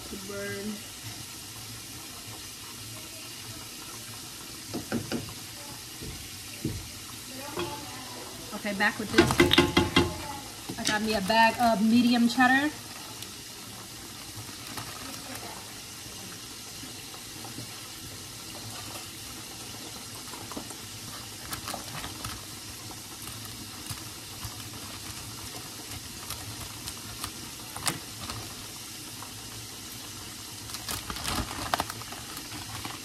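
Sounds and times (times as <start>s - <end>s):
chicken frying in oil: 0.0s - 33.0s
plastic bag crinkling: 13.8s - 15.8s, 18.4s - 33.0s.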